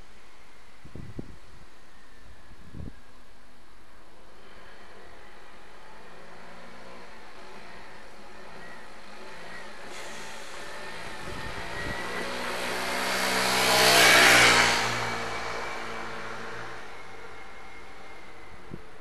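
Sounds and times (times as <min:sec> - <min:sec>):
motorbike engine passing by: 0:10.7 - 0:16.9.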